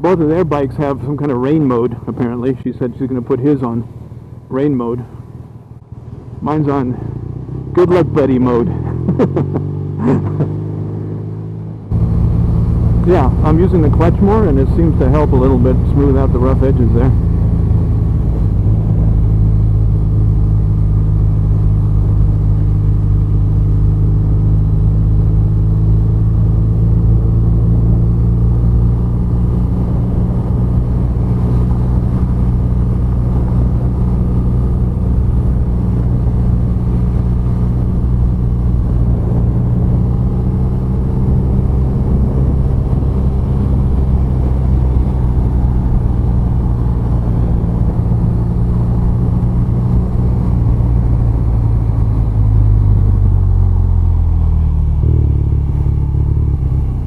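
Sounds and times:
motorcycle engine rumbling: 0.0s - 57.0s.

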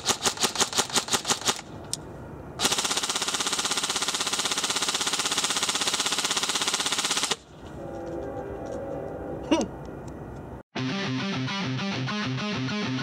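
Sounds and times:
airsoft rifle firing: 0.0s - 1.7s, 2.6s - 7.4s.

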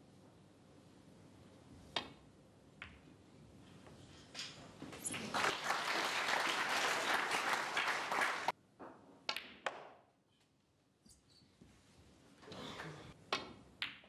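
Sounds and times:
snooker balls clicking: 2.8s - 3.1s, 13.3s - 14.0s
audience applauding: 5.2s - 8.5s.

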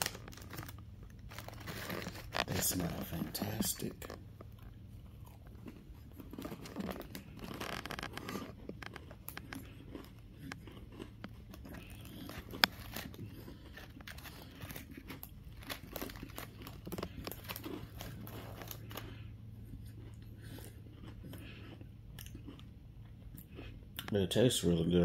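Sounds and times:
cookie chewing and crunching: 0.0s - 25.0s.

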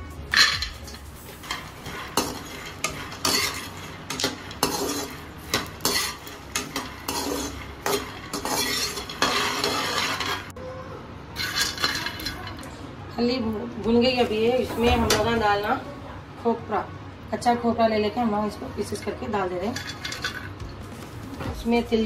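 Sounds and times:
metal spatula scraping pan: 0.3s - 10.5s, 14.3s - 15.7s.

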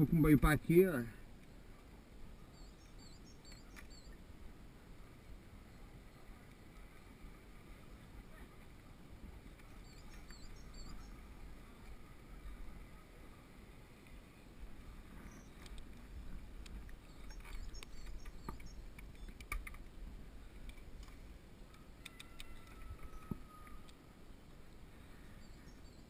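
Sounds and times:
faint high chirps: 9.7s - 11.2s.

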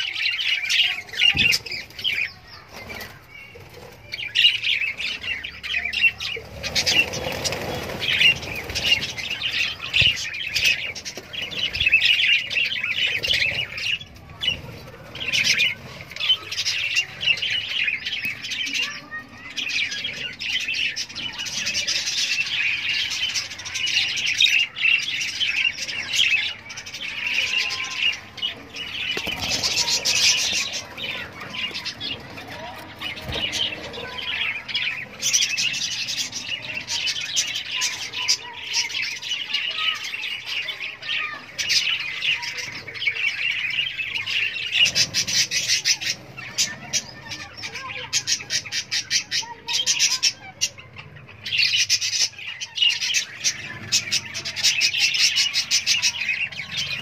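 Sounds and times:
budgerigars chattering and warbling: 0.0s - 57.0s
wings flapping: 6.4s - 11.9s, 28.7s - 35.4s.

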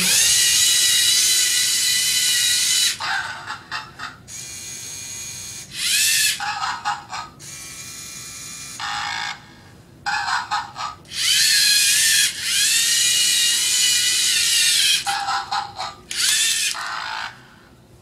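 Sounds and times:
robot servo motors whining: 4.4s - 6.4s, 11.1s - 15.1s, 16.1s - 17.1s.

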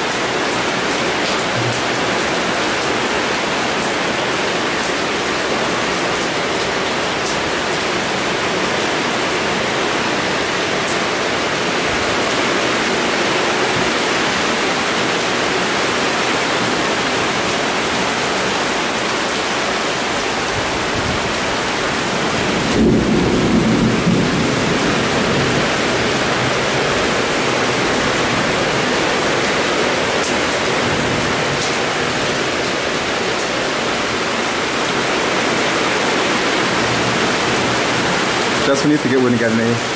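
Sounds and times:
heavy rain: 0.0s - 39.9s
low rumble of thunder: 22.1s - 27.0s.

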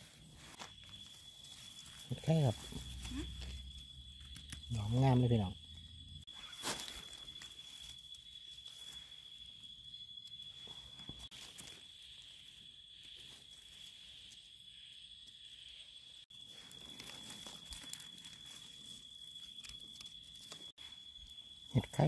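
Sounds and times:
dry leaves rustling and crackling: 0.0s - 4.9s, 6.3s - 9.1s, 10.8s - 14.3s, 16.4s - 21.0s
high-pitched insect call: 0.0s - 22.0s.

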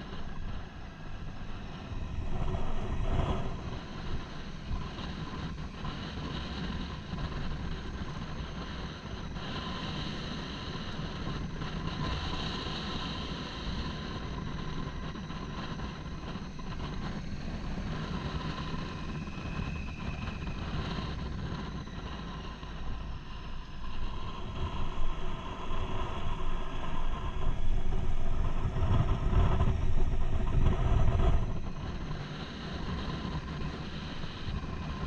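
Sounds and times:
motorcycle engine drone: 0.0s - 35.0s
wind noise: 0.0s - 35.0s
road noise: 20.2s - 35.0s.

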